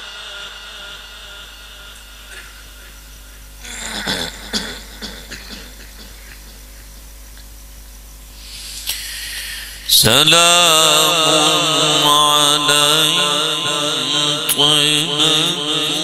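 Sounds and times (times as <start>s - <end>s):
electrical hum: 0.0s - 16.0s
breath into microphone: 8.3s - 9.9s.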